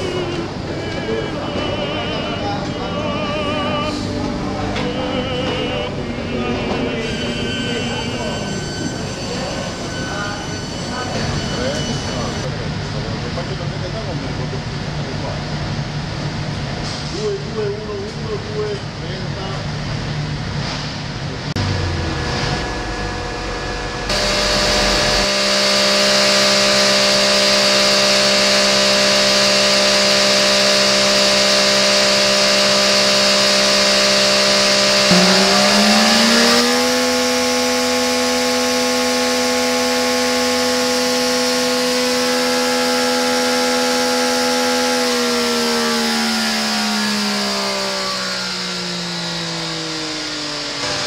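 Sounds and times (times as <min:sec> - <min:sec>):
motorcycle engine revving: 0:21.4 - 0:51.0.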